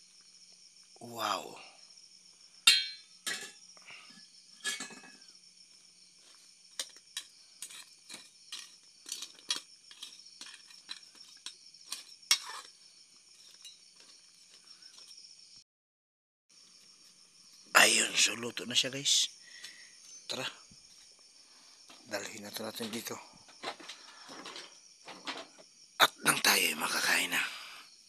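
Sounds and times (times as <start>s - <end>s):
crickets chirping: 0.0s - 15.6s, 16.5s - 28.0s
spoon clinking against metal pan: 2.7s - 3.5s.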